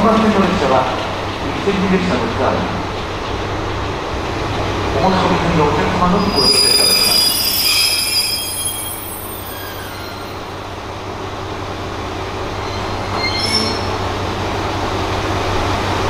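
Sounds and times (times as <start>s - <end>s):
diesel railcar rolling to a stop: 0.0s - 16.0s
brief high squeak: 6.4s - 10.4s, 12.6s - 14.0s.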